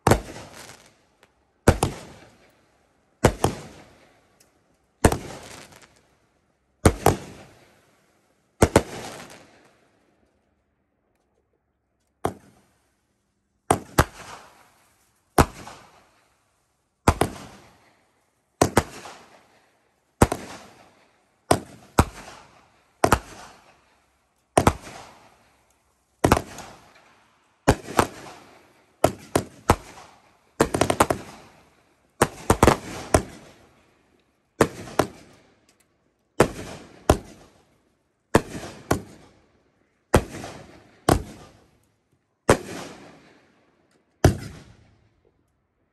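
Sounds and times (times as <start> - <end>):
firework bangs: 0.0 - 0.9, 1.7 - 2.4, 3.2 - 4.0, 5.0 - 6.0, 8.6 - 9.5, 17.1 - 17.8, 21.5 - 23.6, 27.7 - 31.6, 40.1 - 41.6.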